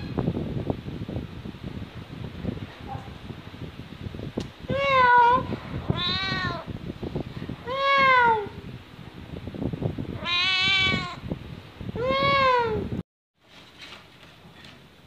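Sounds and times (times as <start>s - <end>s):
cat meowing: 4.7s - 6.7s, 7.6s - 8.6s, 10.2s - 11.2s, 12.0s - 12.8s.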